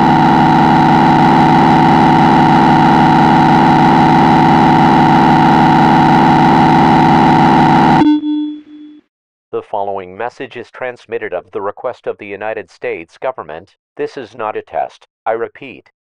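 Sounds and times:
loud two-tone alarm: 0:00.0 - 0:09.1.

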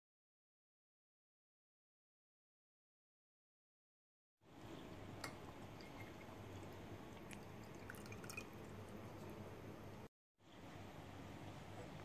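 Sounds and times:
low steady hum: 0:04.5 - 0:12.0
water trickling and dripping: 0:04.6 - 0:09.5.

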